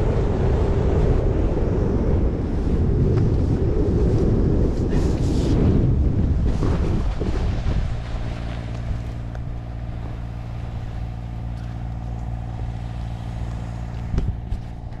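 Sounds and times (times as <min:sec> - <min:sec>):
rush of wind: 0:00.0 - 0:15.0
tractor engine running: 0:07.8 - 0:15.0.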